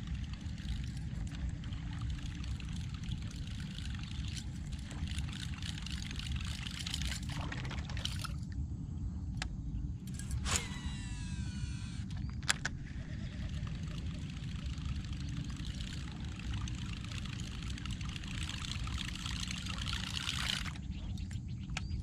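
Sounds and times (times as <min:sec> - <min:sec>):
lure gurgling across water: 0:00.0 - 0:08.4, 0:12.8 - 0:20.9.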